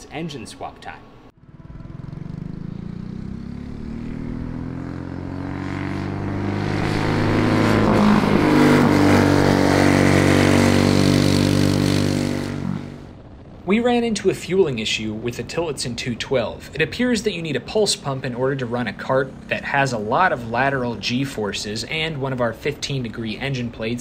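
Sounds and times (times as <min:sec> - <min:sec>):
kart engine at high revs: 0:01.6 - 0:13.0.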